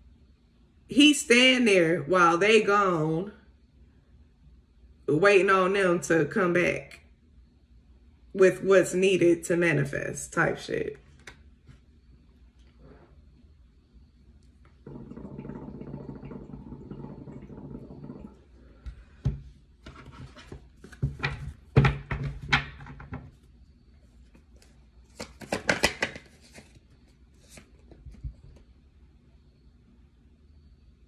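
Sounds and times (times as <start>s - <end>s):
cards being shuffled: 11.0s - 11.8s, 24.3s - 28.0s.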